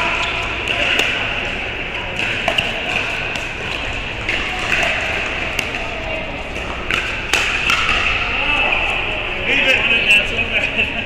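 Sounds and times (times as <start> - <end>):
indoor hall background noise: 0.0 - 11.0
paddles hitting plastic ball: 6.5 - 8.2.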